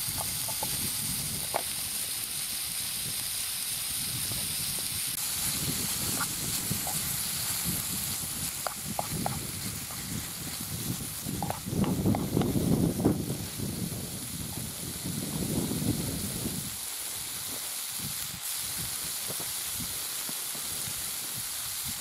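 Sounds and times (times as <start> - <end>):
food sizzling in frying pan: 0.0 - 22.0
light ticks and pops: 11.4 - 12.6.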